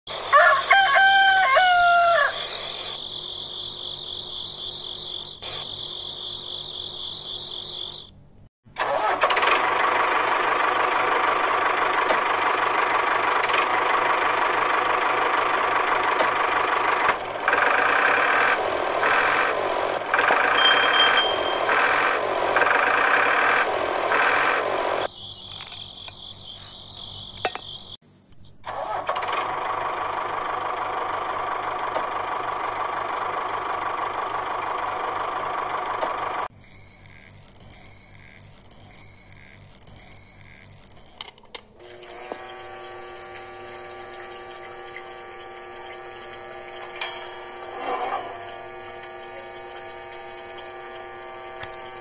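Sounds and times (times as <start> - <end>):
rooster crowing: 0.2 - 2.8.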